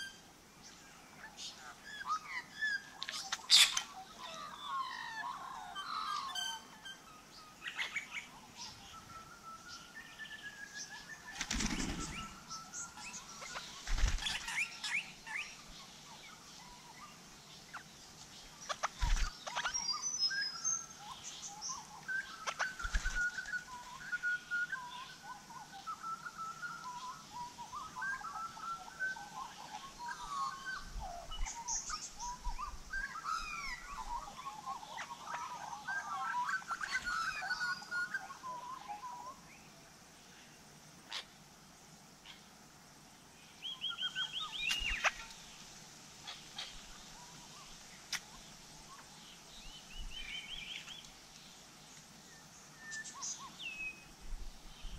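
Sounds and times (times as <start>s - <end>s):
birds chirping: 0.0s - 54.9s
wings flapping: 11.3s - 12.4s, 13.8s - 14.4s, 18.8s - 19.3s, 22.7s - 23.6s.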